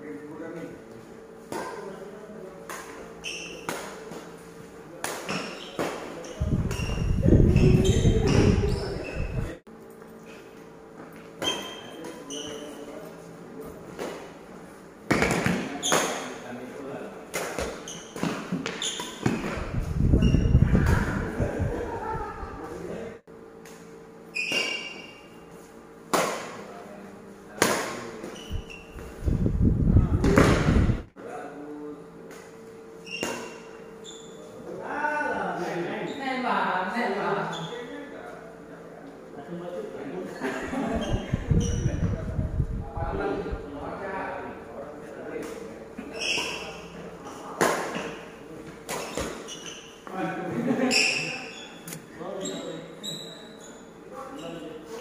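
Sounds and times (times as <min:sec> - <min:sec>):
voices: 0:00.1 - 0:09.6, 0:19.6 - 0:23.2
shoes squeaking on court floor: 0:02.8 - 0:04.6, 0:05.3 - 0:09.6, 0:11.0 - 0:13.3, 0:17.6 - 0:21.2, 0:24.3 - 0:25.7, 0:28.2 - 0:29.3, 0:33.0 - 0:34.6, 0:37.5 - 0:37.9, 0:40.8 - 0:42.2, 0:46.0 - 0:47.4, 0:48.0 - 0:50.1, 0:50.8 - 0:55.0.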